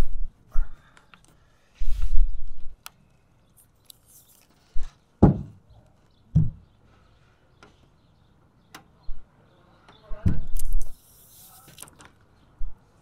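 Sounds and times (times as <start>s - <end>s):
knocks on sheet-metal van roof: 5.2s - 5.6s.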